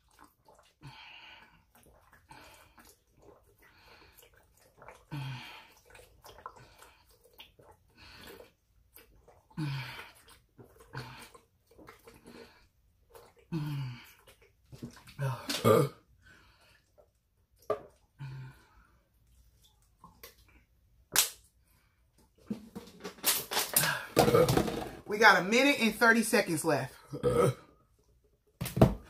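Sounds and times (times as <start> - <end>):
person gulping water: 0.0 - 25.0, 27.0 - 29.0
breathing: 18.2 - 19.1.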